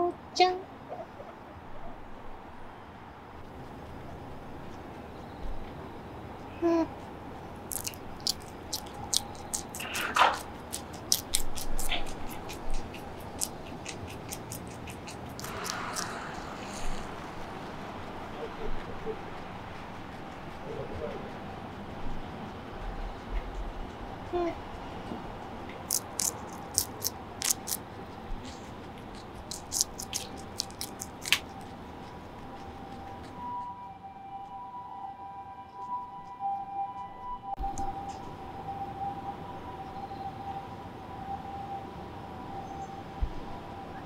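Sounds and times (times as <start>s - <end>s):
background hiss: 2.4s - 20.6s
guinea pig crunching vegetable: 6.6s - 33.5s.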